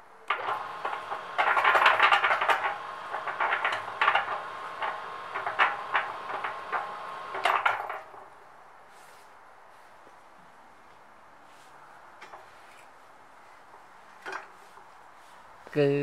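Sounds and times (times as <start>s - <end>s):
cement mixer clanking and rattling: 0.3s - 8.3s
faint motor whine: 0.3s - 8.4s.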